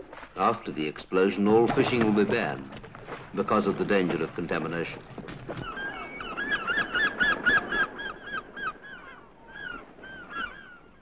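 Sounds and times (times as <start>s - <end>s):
birds honking calls: 4.6s - 10.9s.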